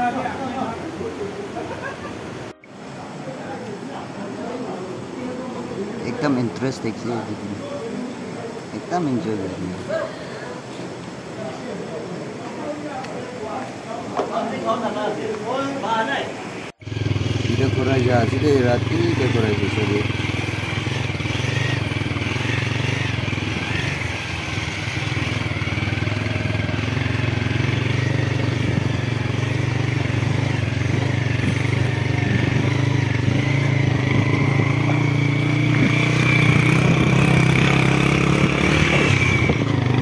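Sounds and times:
motorcycle engine running: 0:16.8 - 0:40.0.

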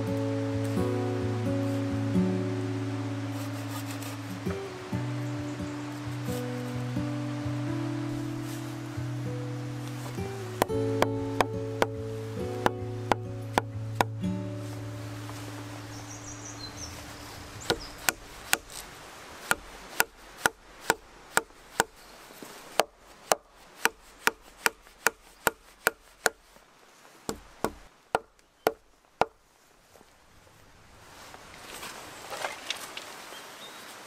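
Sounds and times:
blade chopping wooden pole: 0:10.6 - 0:12.0, 0:12.6 - 0:14.2, 0:17.6 - 0:22.0, 0:22.7 - 0:26.4, 0:27.3 - 0:29.4.

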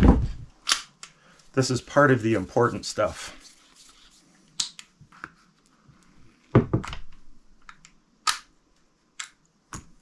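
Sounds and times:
pistol parts clicking: 0:00.6 - 0:01.2.

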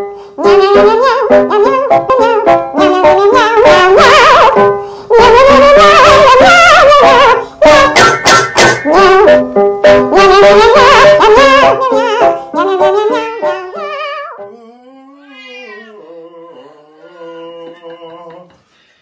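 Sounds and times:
music with singing and plucked strings: 0:04.8 - 0:18.8
cat yowling: 0:12.8 - 0:16.2
man singing: 0:12.8 - 0:18.7.

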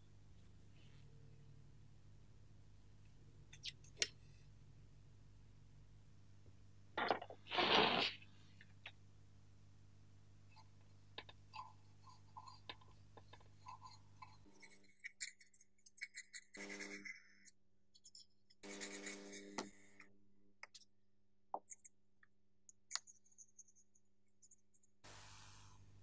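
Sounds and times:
toothbrush tapping and scraping metal: 0:10.6 - 0:17.1
toothbrush scrubbing: 0:11.2 - 0:17.1, 0:18.1 - 0:19.6.

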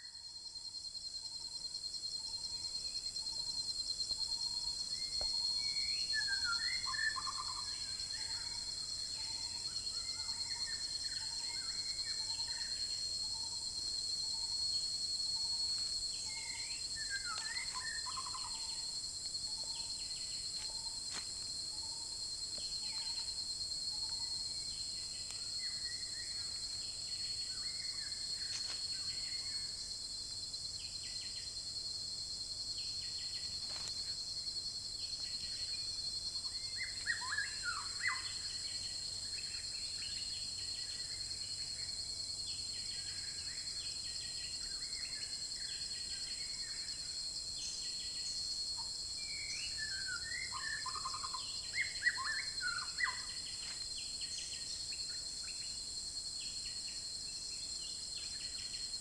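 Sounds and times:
insects droning: 0:00.0 - 0:59.0
forest birds calling: 0:15.4 - 0:18.8.

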